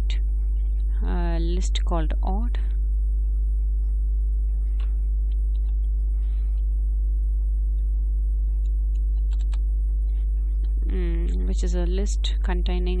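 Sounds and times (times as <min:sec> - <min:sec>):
low electrical hum: 0:00.0 - 0:13.0
keyboard key clicks: 0:09.2 - 0:09.6.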